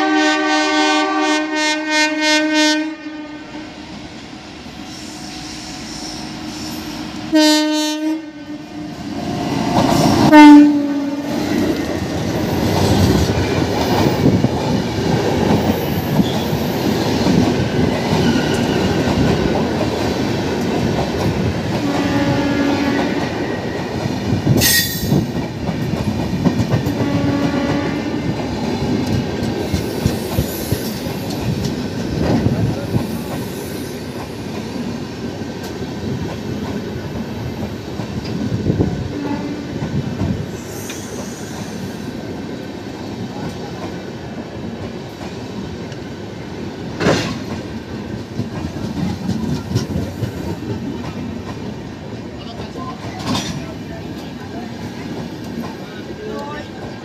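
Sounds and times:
train horn blasts: 0.0s - 3.8s, 5.1s - 8.9s, 10.2s - 11.4s, 21.8s - 23.3s, 26.9s - 28.3s, 39.1s - 39.7s
train coaches rumbling: 0.0s - 57.0s.

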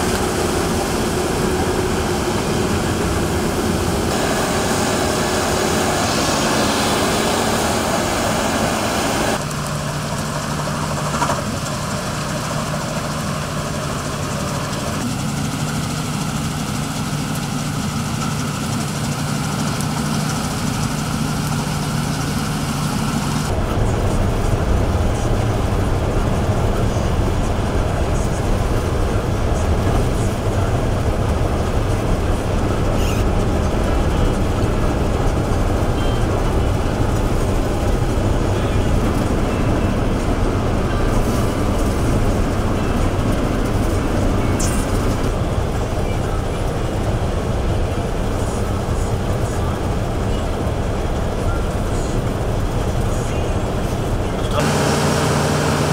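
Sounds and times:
heavy low rumble: 0.0s - 12.3s, 15.0s - 55.9s
engine hum: 0.0s - 55.9s.

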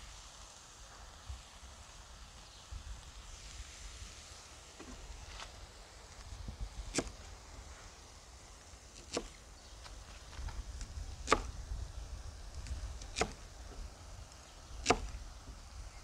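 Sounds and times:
cleaver chopping on wooden block: 6.9s - 7.2s, 9.0s - 9.4s, 11.2s - 11.6s, 13.0s - 13.4s, 14.8s - 15.2s.

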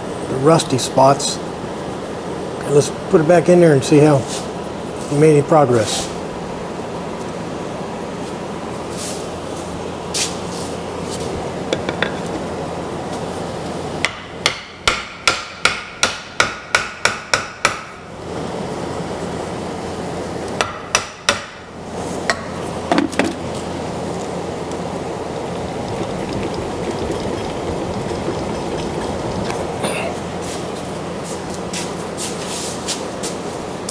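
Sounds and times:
hammer striking wooden handle: 14.0s - 17.9s, 20.6s - 21.6s.

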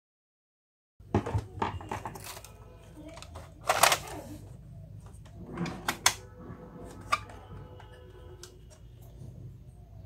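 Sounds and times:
plastic parts clicking and knocking: 1.0s - 4.3s, 5.0s - 6.2s, 6.9s - 9.1s.

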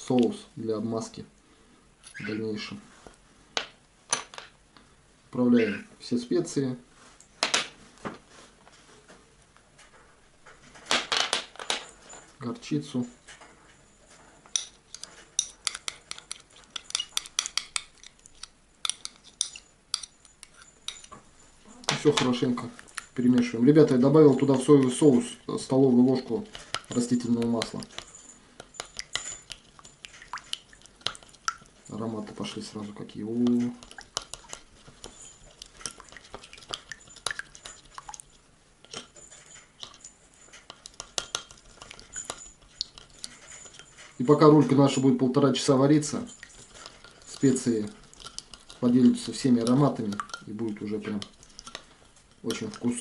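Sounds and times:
teaspoon clinking on glass dish: 14.5s - 21.2s, 26.1s - 32.8s, 33.4s - 45.0s, 46.1s - 53.0s.

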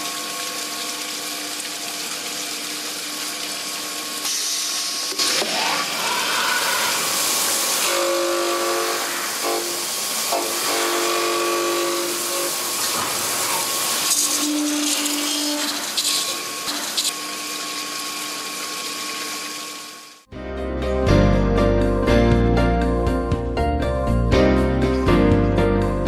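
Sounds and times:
grinding machine humming tone: 5.4s - 20.2s.

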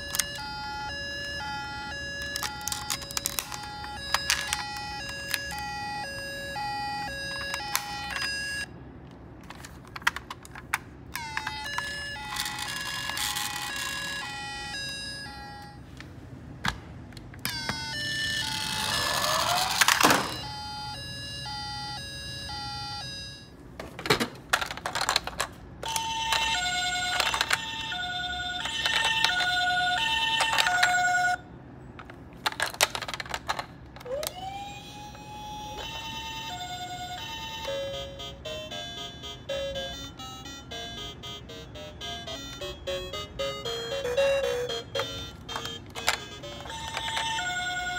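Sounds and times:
two-tone toy siren: 0.0s - 8.7s, 11.1s - 15.8s, 17.4s - 23.5s, 25.8s - 31.5s, 33.5s - 47.9s
rising and falling siren wail: 18.1s - 20.4s, 34.0s - 36.8s
plastic toy button clicks: 45.0s - 47.4s.

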